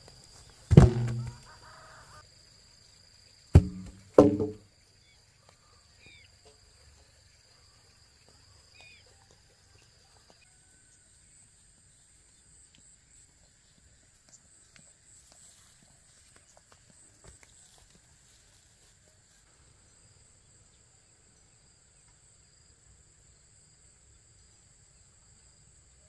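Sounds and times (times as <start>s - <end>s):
second insect tone: 0.0s - 3.9s
faint footsteps on grass: 8.0s - 19.5s.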